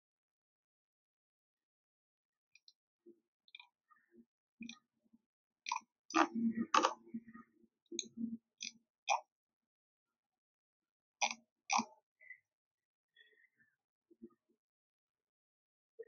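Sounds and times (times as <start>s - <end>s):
clicks and taps on a device: 5.7s - 9.3s.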